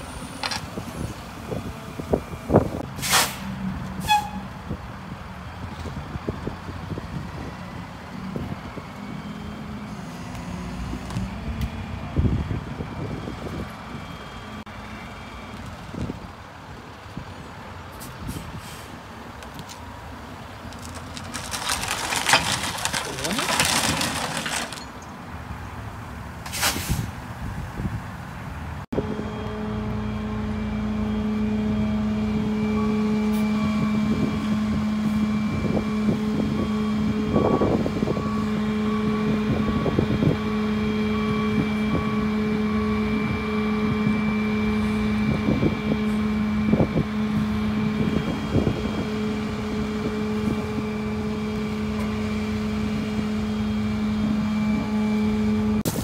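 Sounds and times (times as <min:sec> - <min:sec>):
knocks and rustles: 0:20.7 - 0:25.1.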